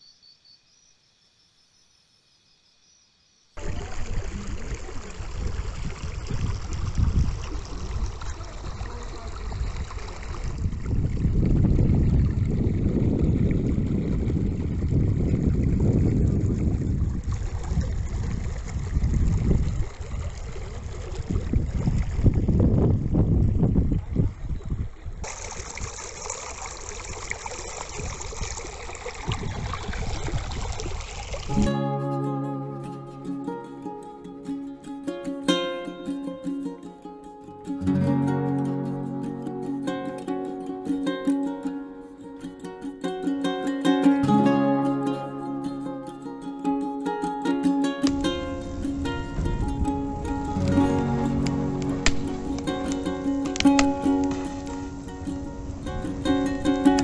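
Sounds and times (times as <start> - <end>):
stream running over stones: 3.6 - 22.7, 24.0 - 31.7, 48.0 - 57.0
wind buffeting microphone: 3.6 - 25.9, 27.9 - 31.6, 48.1 - 57.0.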